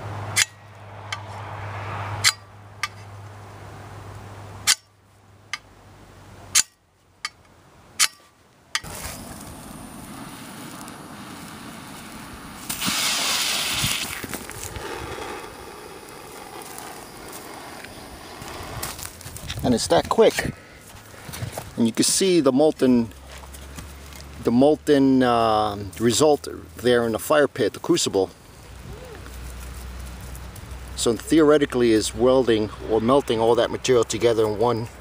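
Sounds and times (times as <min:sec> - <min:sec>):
spark rod scraping on steel: 0:08.0 - 0:19.6
propane torch hissing: 0:08.8 - 0:19.3
welding charge fizzing rush: 0:08.8 - 0:20.0.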